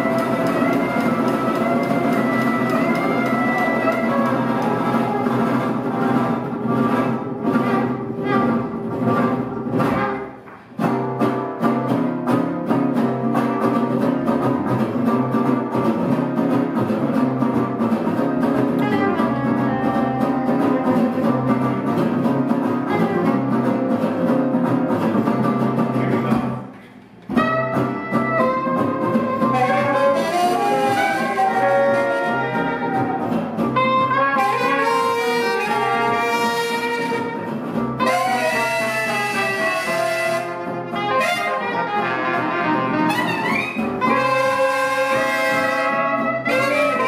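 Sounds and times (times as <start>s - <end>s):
trombone: 0.0s - 10.4s, 18.8s - 21.8s, 27.3s - 47.0s
trumpet: 0.0s - 10.4s, 18.8s - 21.3s, 27.3s - 47.0s
guitar: 0.0s - 47.0s
upright bass: 0.0s - 47.0s
soprano saxophone: 18.8s - 20.8s, 27.3s - 37.4s, 38.0s - 47.0s.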